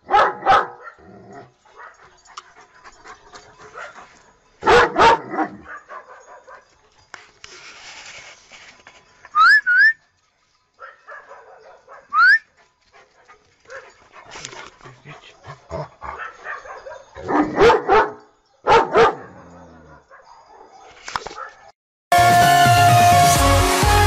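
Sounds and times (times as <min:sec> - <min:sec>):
dog barking: 0:00.0 - 0:02.0, 0:03.7 - 0:06.8, 0:10.8 - 0:12.3, 0:13.7 - 0:14.0, 0:15.0 - 0:21.7
high rising whistles: 0:09.4 - 0:10.0.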